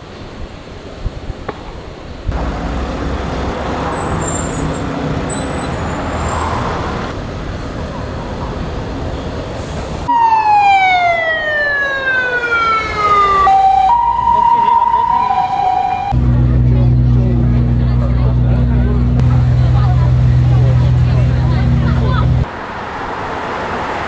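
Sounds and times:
street traffic: 0:00.0 - 0:24.0
ambulance siren wailing: 0:10.1 - 0:16.2.

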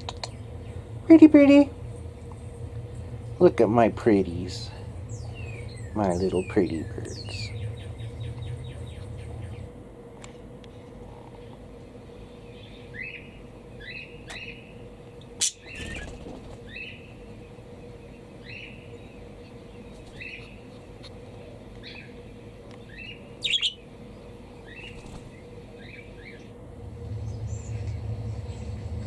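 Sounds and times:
faint steady hum: 0:00.0 - 0:29.0
budgerigars chirping: 0:05.1 - 0:09.6, 0:22.9 - 0:23.8.

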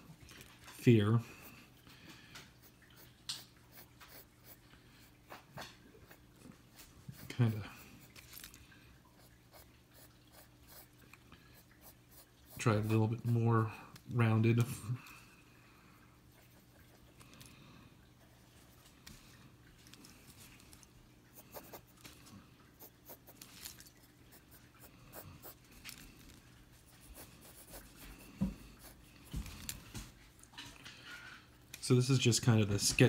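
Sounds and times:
pencil scratching on paper: 0:09.2 - 0:10.9, 0:21.4 - 0:21.9, 0:26.9 - 0:28.2.

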